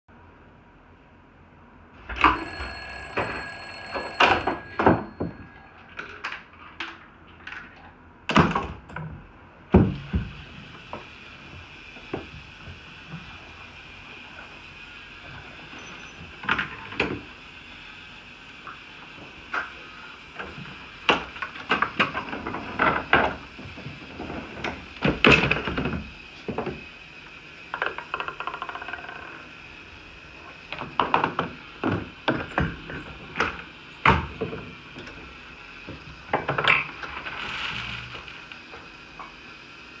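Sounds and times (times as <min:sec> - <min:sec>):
objects knocking and clattering: 0:02.1 - 0:10.2, 0:27.8 - 0:29.3.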